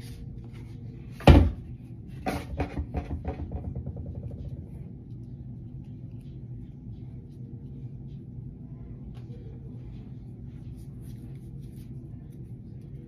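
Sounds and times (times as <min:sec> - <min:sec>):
steady low hum: 0:00.0 - 0:13.0
knocks and rattles: 0:02.2 - 0:04.7.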